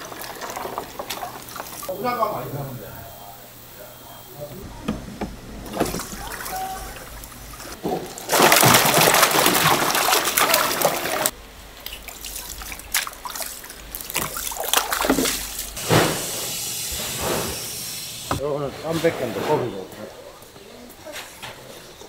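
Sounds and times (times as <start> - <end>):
water splashing and sloshing: 0.0 - 1.9, 5.0 - 16.3.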